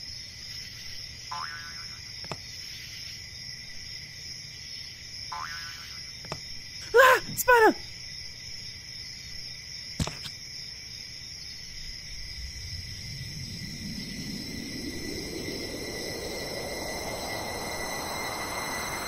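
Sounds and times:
cricket-like chirring: 0.0 - 19.0
rising whoosh: 12.1 - 19.0.

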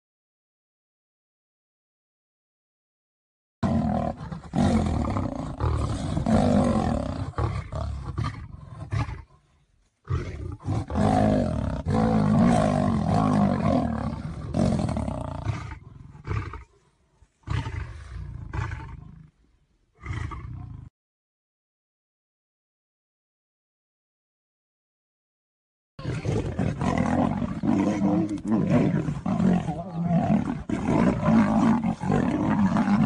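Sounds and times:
big cats roaring: 3.6 - 9.3, 10.1 - 16.8, 20.0 - 20.9, 26.0 - 33.0.

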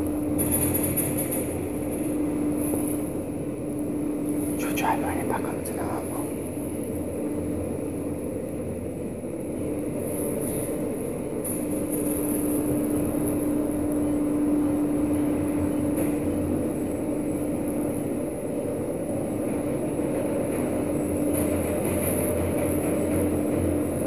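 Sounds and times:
lift machine hum and rumble: 0.0 - 24.0.

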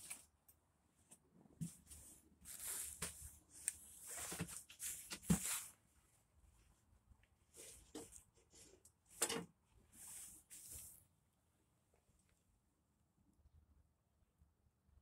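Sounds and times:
scuffing and rustling: 1.6 - 3.4, 4.0 - 5.8.

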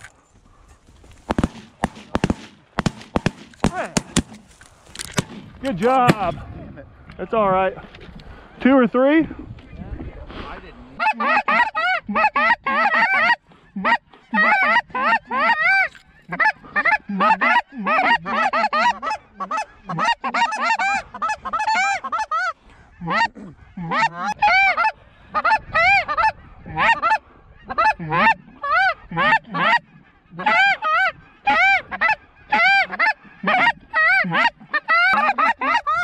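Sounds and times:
goose honking: 11.0 - 36.0.

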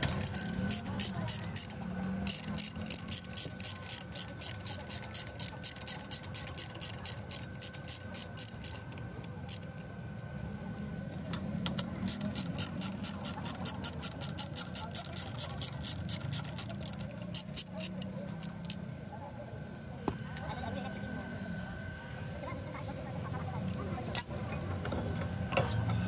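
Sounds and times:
hand ratchet clicking: 0.0 - 9.8, 11.6 - 18.8.

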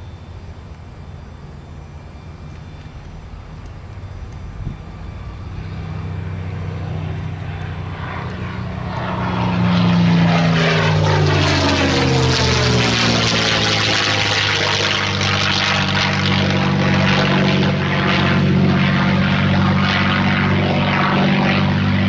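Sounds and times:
propeller plane flying over: 0.0 - 22.0.

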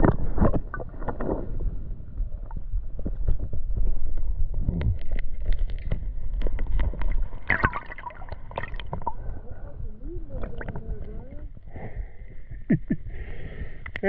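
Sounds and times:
wind rumble on microphone: 0.0 - 7.5, 8.3 - 14.0
microphone handling noise: 0.0 - 9.4
water splashing: 5.3 - 9.4, 10.1 - 11.4.

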